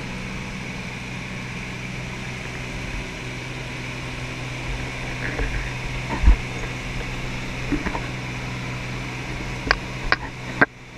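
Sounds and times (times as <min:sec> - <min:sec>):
propeller airplane engine drone: 0:00.0 - 0:10.9.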